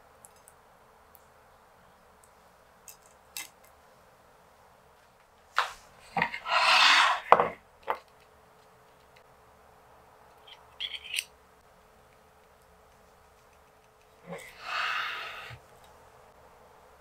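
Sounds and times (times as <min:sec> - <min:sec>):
cutting board scraping on table: 0:06.2 - 0:07.6.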